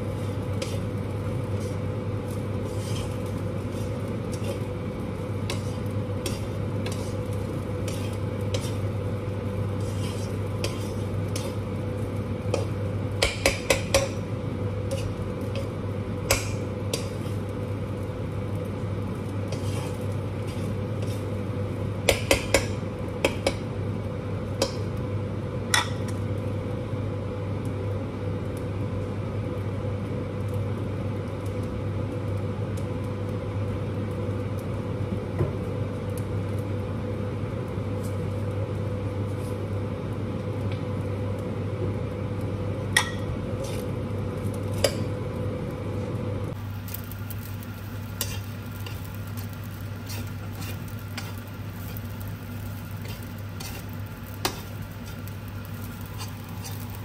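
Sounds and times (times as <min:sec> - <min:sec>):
stirring and scraping: 0:00.0 - 0:22.7, 0:43.5 - 0:44.0, 0:46.8 - 0:57.0
rice frying in a wok: 0:00.0 - 0:57.0.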